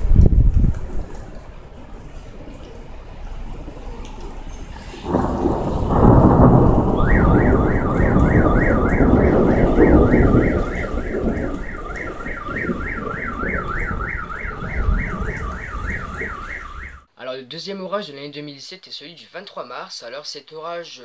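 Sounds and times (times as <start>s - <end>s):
rain falling: 0.0s - 17.1s
thunder rumbling: 0.0s - 17.1s
car alarm wailing: 5.1s - 17.1s.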